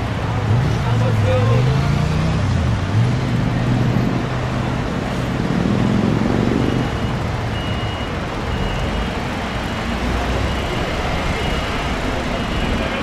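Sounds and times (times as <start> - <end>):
motorway traffic: 0.0 - 13.0
high warning beeps: 6.4 - 13.0.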